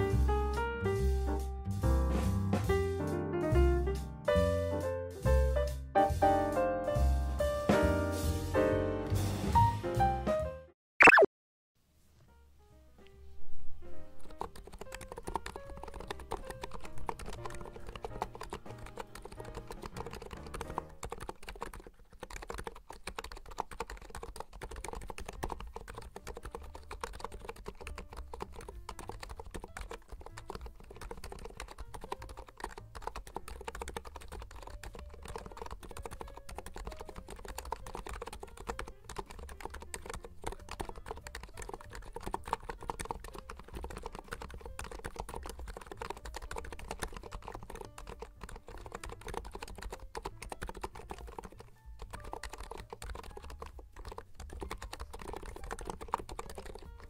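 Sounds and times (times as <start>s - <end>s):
fast typing on keyboard: 14.2s - 57.0s.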